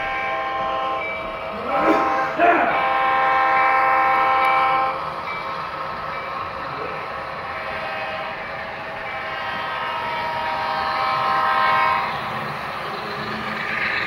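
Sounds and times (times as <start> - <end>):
model train horn chord: 0.0 - 5.0
train rolling along track: 0.0 - 14.0.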